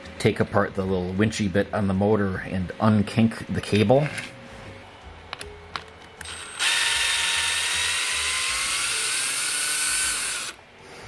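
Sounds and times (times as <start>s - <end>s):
cordless drill whining: 6.2s - 10.6s.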